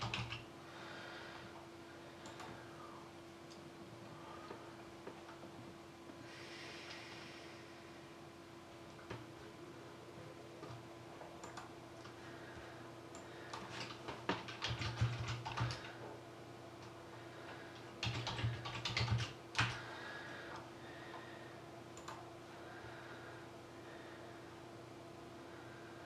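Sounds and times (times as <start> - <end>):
typing on a computer keyboard: 0.0 - 0.5, 11.4 - 12.2, 13.2 - 16.0, 17.7 - 19.9, 22.0 - 22.3
faint steady hum: 0.0 - 26.0.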